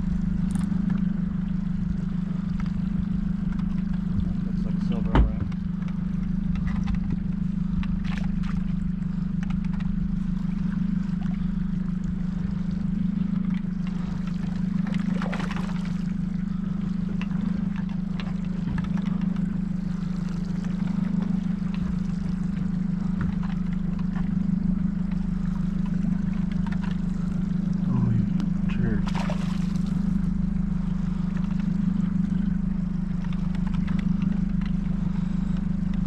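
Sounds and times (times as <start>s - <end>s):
outboard motor running: 0.0s - 36.0s
water splashing against hull: 0.0s - 36.0s.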